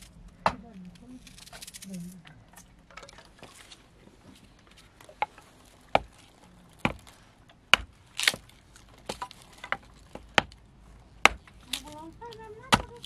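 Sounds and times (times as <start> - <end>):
knocks of split firewood: 4.7 - 13.0.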